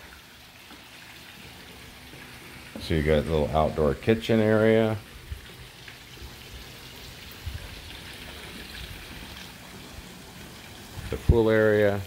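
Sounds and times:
water splashing into pool: 0.0s - 12.0s.

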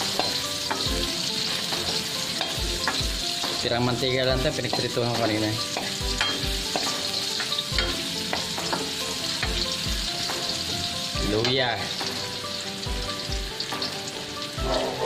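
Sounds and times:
metal spatula scraping wok: 0.0s - 3.6s
food sizzling in hot oil: 0.0s - 15.0s.

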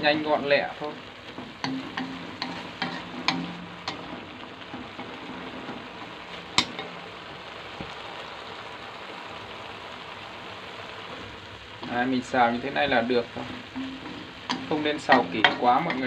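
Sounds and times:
food sizzling in a frying pan: 0.0s - 16.0s
chopsticks tapping pan: 1.3s - 5.8s, 6.4s - 7.0s, 12.8s - 16.0s.

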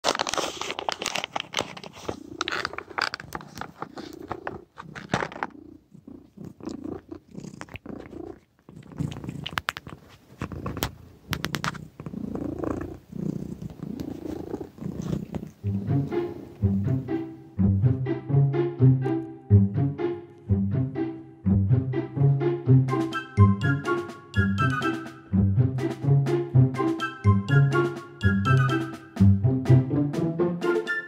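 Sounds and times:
cat purring: 1.8s - 17.1s
music: 15.6s - 31.0s.

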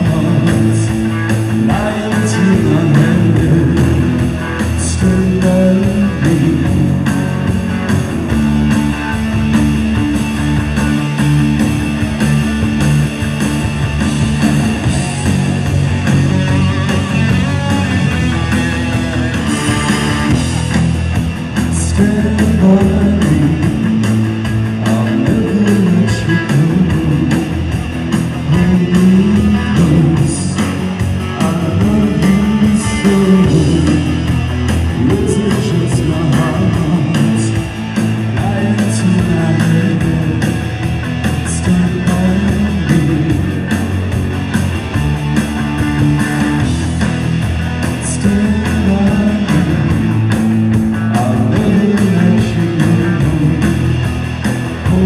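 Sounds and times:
rock band playing: 0.0s - 55.0s.

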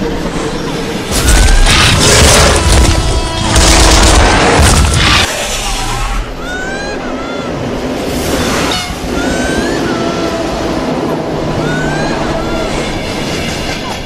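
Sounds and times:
children crying: 6.3s - 8.0s, 9.0s - 10.6s, 11.4s - 13.0s.

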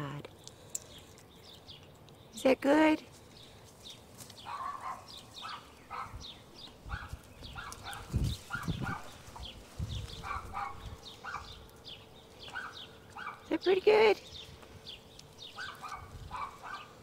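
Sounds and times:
birds chirping: 0.0s - 17.0s
dogs barking: 4.4s - 9.4s, 10.1s - 11.6s, 12.4s - 13.5s, 15.5s - 17.0s.

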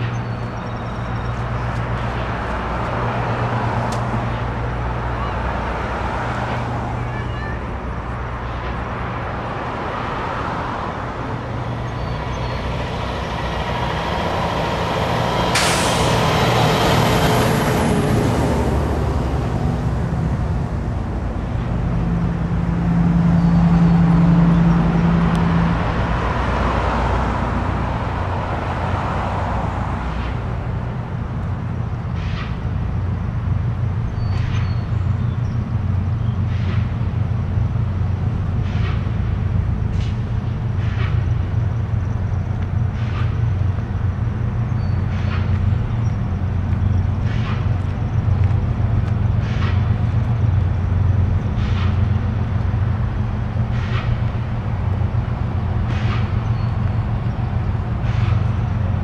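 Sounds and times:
heavy engine low hum: 0.0s - 59.0s
vehicles driving past: 0.0s - 59.0s
loud hiss: 15.4s - 16.5s.

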